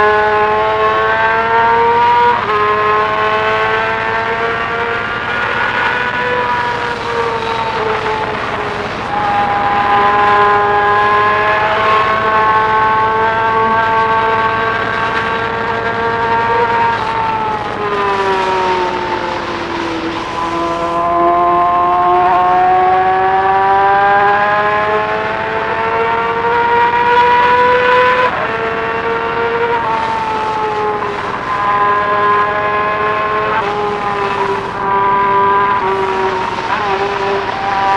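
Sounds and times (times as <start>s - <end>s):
motorcycle engine at high revs: 0.0s - 37.9s.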